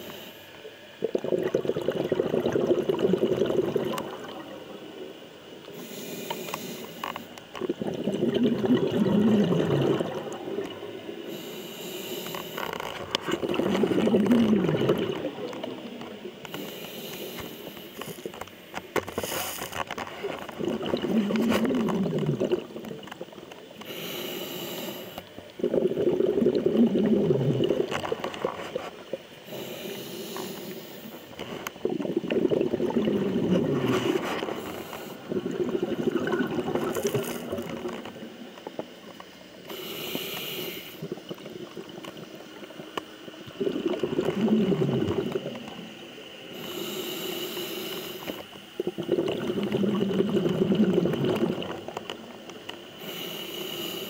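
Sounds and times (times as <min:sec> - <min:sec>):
bubbles on exhale: 0:01.0 - 0:04.9, 0:07.6 - 0:11.0, 0:12.3 - 0:16.7, 0:20.0 - 0:23.4, 0:25.5 - 0:28.9, 0:31.4 - 0:38.4, 0:40.9 - 0:45.9, 0:48.8 - 0:52.1
diver breathing through regulator: 0:05.7 - 0:07.2, 0:11.2 - 0:18.4, 0:23.8 - 0:27.8, 0:29.4 - 0:38.0, 0:39.7 - 0:41.2, 0:46.5 - 0:48.5, 0:53.0 - 0:54.0.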